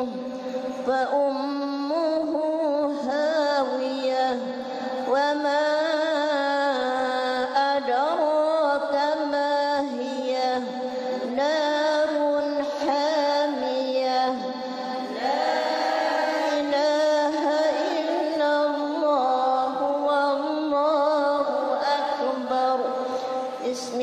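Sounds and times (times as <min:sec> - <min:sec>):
women chanting melodically: 0:14.6 - 0:19.8.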